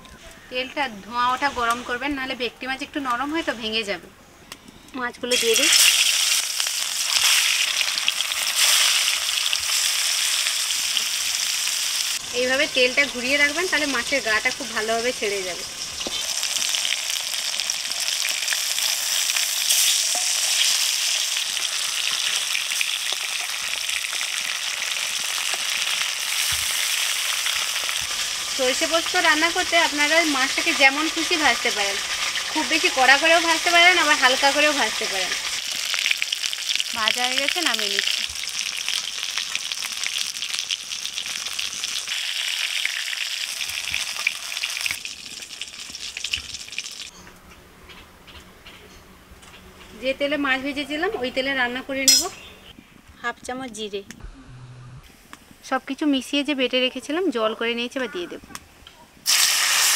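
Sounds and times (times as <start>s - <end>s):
fish sizzling in hot oil: 5.3s - 47.1s, 59.2s - 59.9s.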